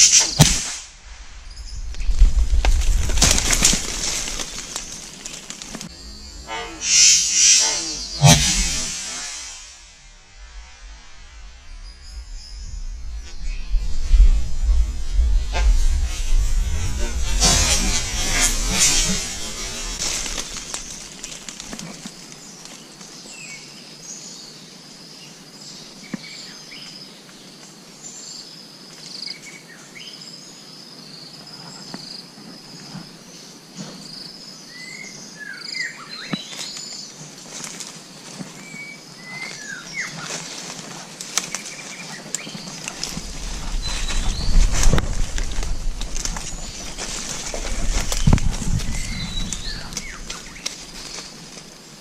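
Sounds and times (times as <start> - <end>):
low rumble: 0.8 - 21.4, 42.8 - 51.2.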